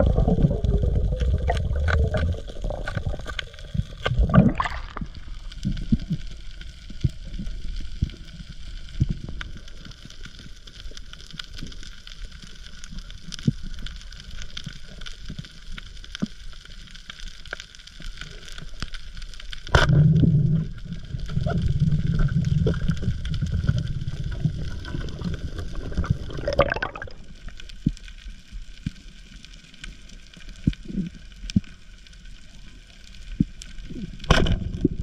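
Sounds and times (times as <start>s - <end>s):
low water rushing: 0.0s - 5.6s, 19.8s - 27.4s
underwater crackle of ticks: 0.0s - 35.0s.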